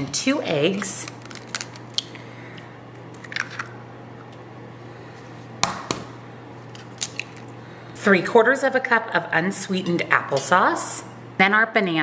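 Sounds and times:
faint steady hum: 0:00.0 - 0:12.0
eggshell cracking: 0:01.0 - 0:02.1, 0:03.1 - 0:03.8.

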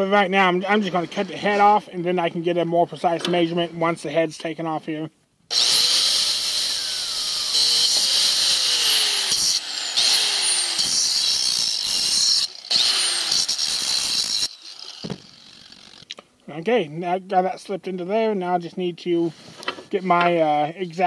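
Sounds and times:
angle grinder cutting bolt: 0:05.5 - 0:16.2.

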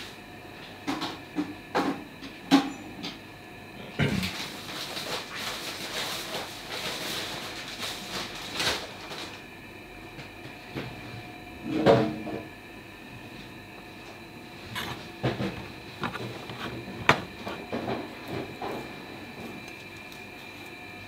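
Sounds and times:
steady hum: 0:09.5 - 0:21.0
kitchen clattering and rustling: 0:14.7 - 0:20.4.

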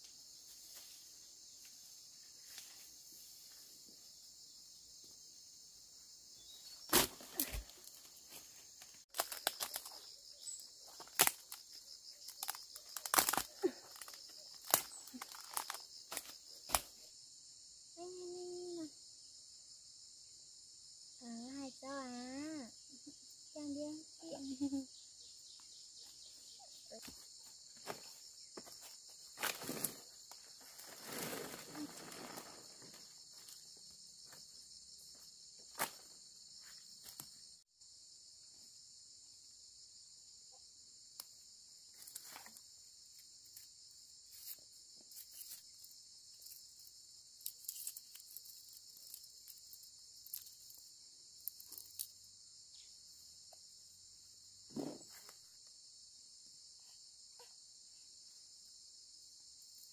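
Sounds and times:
insects droning: 0:00.0 - 0:59.9
leaves snapping and rustling: 0:06.9 - 0:08.0, 0:09.1 - 0:10.0, 0:11.0 - 0:16.9.

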